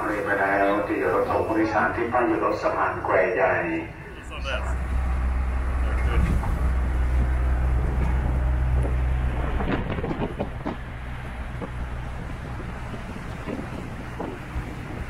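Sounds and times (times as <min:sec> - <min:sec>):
truck engine and road rumble: 0:00.0 - 0:15.0
vehicle body rattling and knocking: 0:06.3 - 0:15.0.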